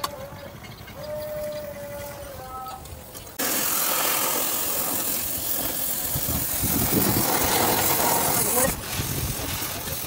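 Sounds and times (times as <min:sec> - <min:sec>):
cutting torch hissing: 0:03.2 - 0:10.0.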